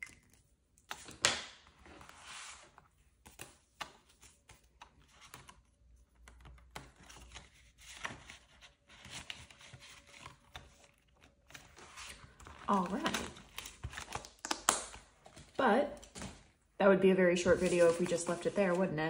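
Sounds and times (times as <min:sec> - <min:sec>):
paper and plastic rustling: 0:06.3 - 0:16.6, 0:17.4 - 0:19.0.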